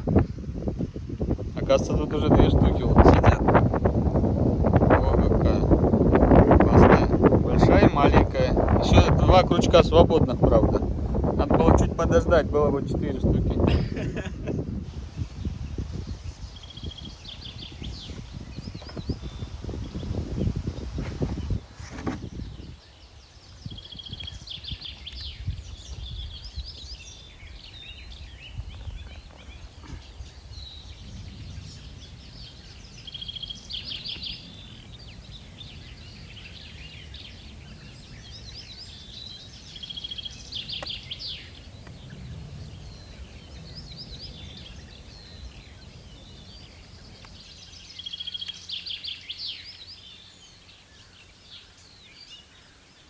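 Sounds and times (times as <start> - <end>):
songbird whistle and trill: 22.2 - 52.8.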